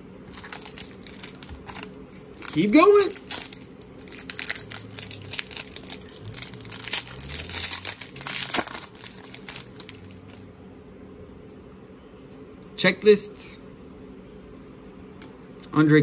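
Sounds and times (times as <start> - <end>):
foil wrapper tearing and crinkling: 0.3 - 10.4.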